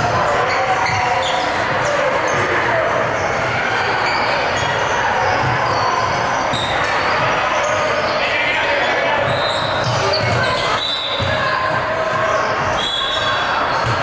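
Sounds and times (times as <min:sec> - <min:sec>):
basketball bouncing: 0:09.2 - 0:10.6, 0:13.7 - 0:14.0.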